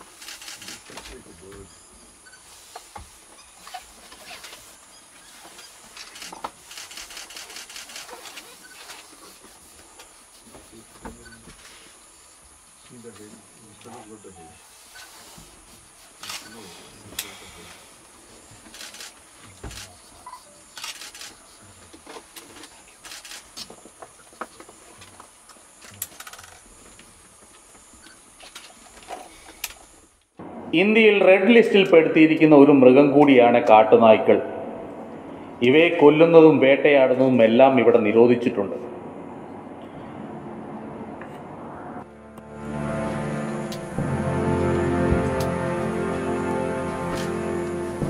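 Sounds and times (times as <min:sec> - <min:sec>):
insect hiss: 0:00.0 - 0:30.2.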